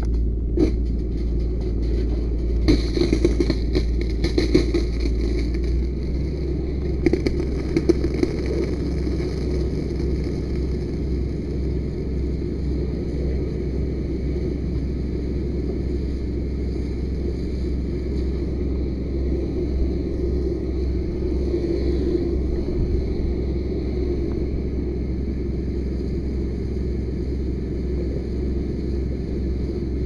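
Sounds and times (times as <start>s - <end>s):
low rumble: 0.0s - 30.0s
fire hose spraying water: 2.7s - 12.3s.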